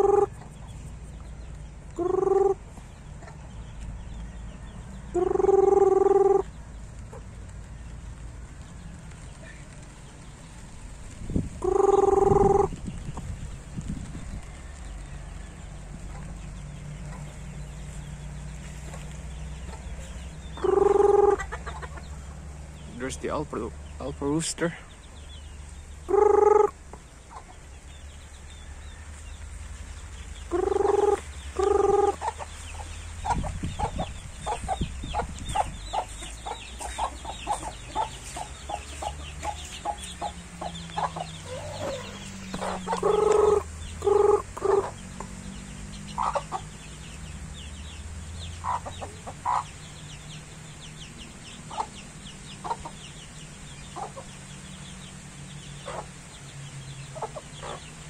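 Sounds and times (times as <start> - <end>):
loud chicken calls: 0.0 - 0.6, 2.0 - 3.4, 5.1 - 6.5, 11.6 - 12.8, 19.6 - 23.4, 26.1 - 27.6, 30.4 - 45.4, 46.0 - 46.8
chickens clucking: 0.0 - 58.0.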